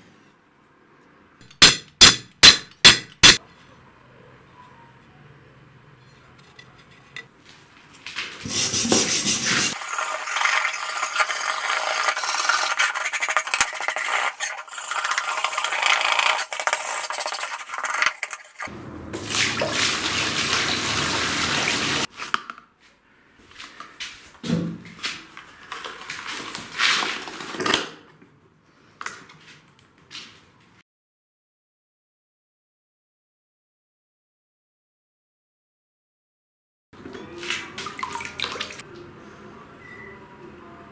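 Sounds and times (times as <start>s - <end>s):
wire brush scratching metal: 8.4s - 18.7s.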